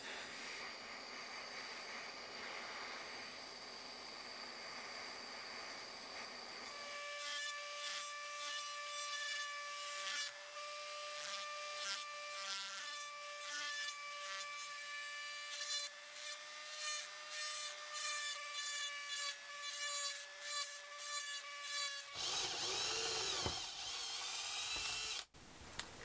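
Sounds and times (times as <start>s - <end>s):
rotary tool whining: 15.5s - 25.3s.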